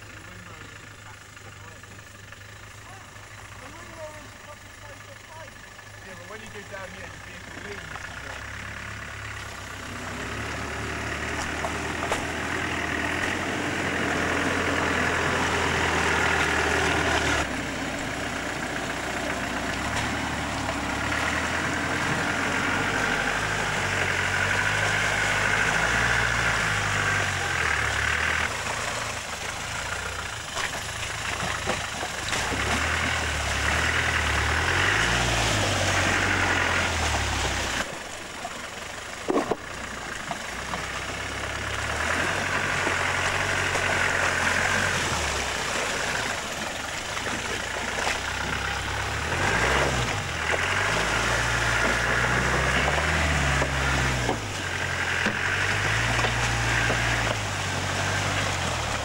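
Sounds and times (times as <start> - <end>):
engine revving under load: 0.0 - 59.0.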